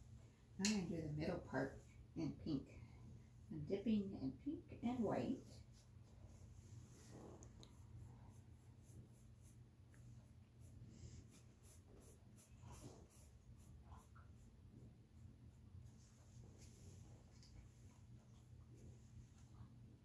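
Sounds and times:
paintbrush scratching on canvas: 5.5 - 14.6.

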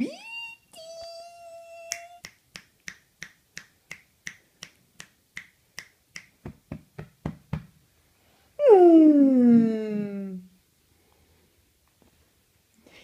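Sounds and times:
fingers snapping: 1.9 - 6.4.

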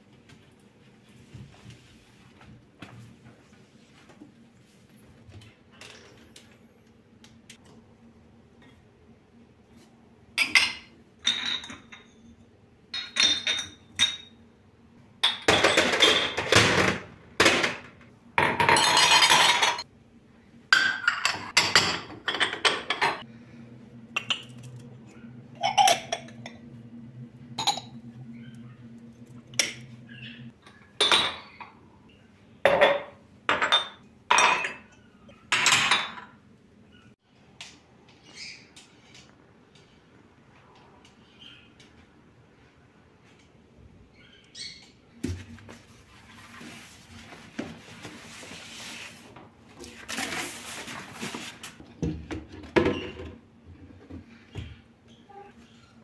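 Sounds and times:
glasses and mugs clinking: 10.4 - 12.2, 13.0 - 14.4, 18.4 - 19.8, 25.6 - 26.6, 27.6 - 28.0, 32.7 - 36.4.

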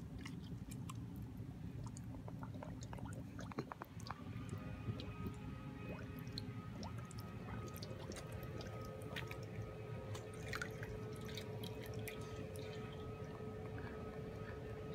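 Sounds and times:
dogs lapping and bubbling water: 0.0 - 14.9.

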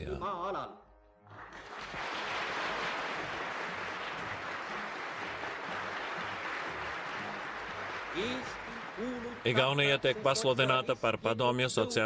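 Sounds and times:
crowd applauding: 1.3 - 10.8.

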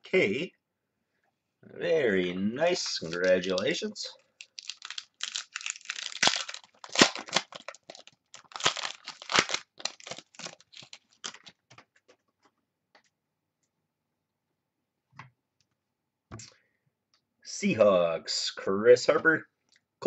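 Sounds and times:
wrapper tearing and crinkling: 2.8 - 3.8, 4.4 - 11.6.

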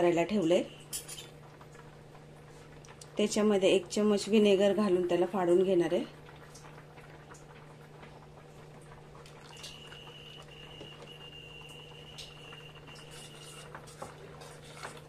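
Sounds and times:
milk simmering in a pot: 0.0 - 15.0
high whistle-like tone: 9.6 - 13.2.

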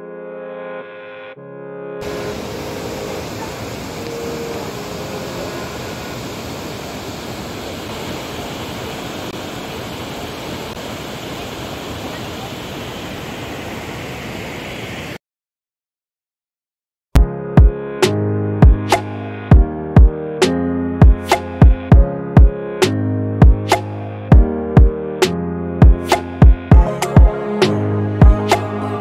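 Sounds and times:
waterfall roaring: 2.0 - 15.2.

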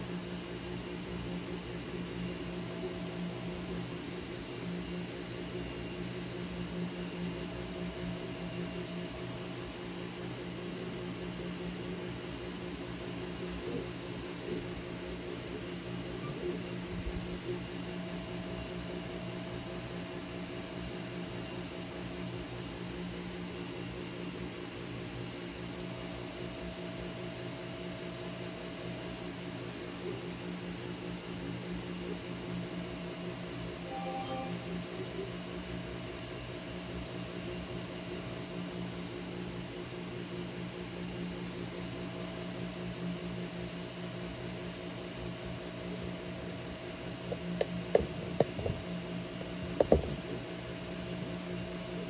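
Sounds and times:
cooling fans humming: 0.0 - 52.0
high-pitched motor tone: 33.8 - 35.4.

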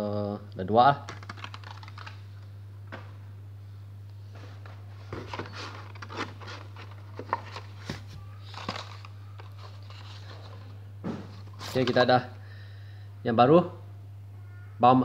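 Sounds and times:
steady low hum: 0.0 - 15.0
plastic and card crinkling: 1.1 - 2.5, 5.0 - 12.2.

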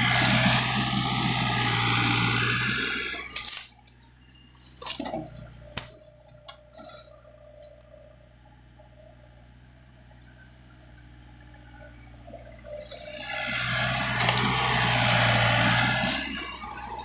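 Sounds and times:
dirt sliding from bucket: 0.0 - 3.6, 12.7 - 17.0
excavator engine hum: 0.0 - 17.0.

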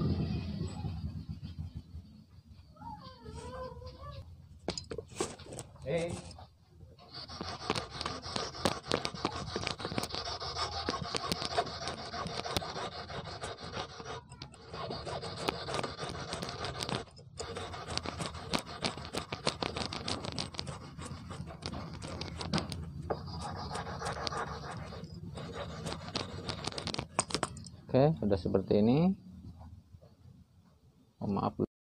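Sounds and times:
sandpaper scratching on wire: 7.0 - 27.5.

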